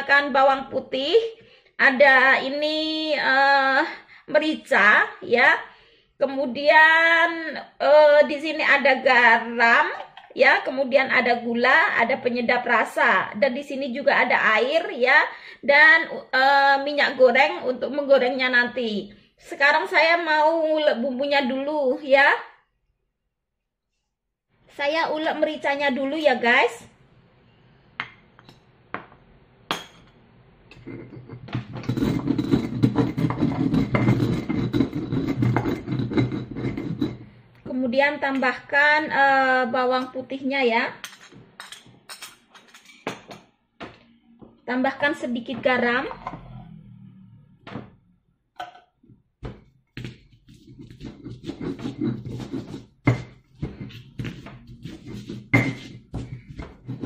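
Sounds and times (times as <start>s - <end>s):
metal spoon clinking on stone mortar: 29.7s - 30.1s
pestle grinding peppercorns: 30.8s - 37.2s, 49.5s - 57.0s.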